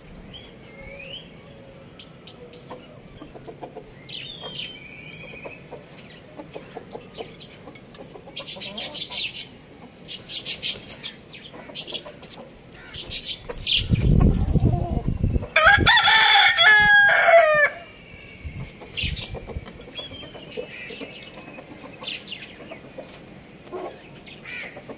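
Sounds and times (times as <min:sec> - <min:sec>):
hens clucking: 0:02.6 - 0:24.9
rooster crowing: 0:15.6 - 0:18.1.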